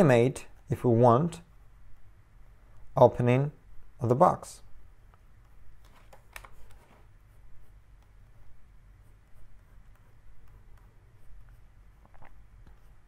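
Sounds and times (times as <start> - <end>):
faint low hum: 0.0 - 13.0
stylus scratching on tablet: 6.6 - 13.0.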